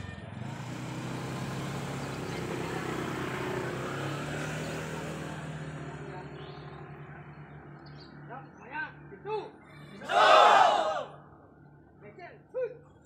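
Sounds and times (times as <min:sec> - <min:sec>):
motor engine running: 0:00.0 - 0:08.2.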